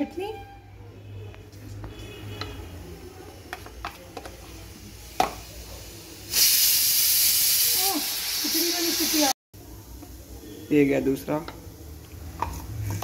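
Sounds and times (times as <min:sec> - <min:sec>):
loud steady hiss: 0:05.3 - 0:09.3.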